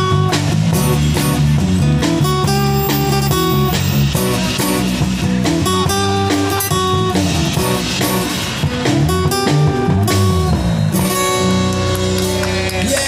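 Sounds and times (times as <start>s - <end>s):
drum kit: 0.0s - 13.0s
electric and acoustic guitars: 0.0s - 13.0s
man singing into a microphone: 12.3s - 13.0s.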